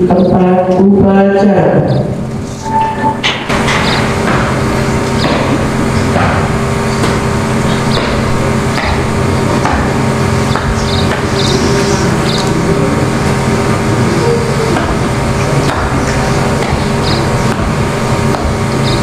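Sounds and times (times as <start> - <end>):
public-address system hum: 0.0 - 19.0.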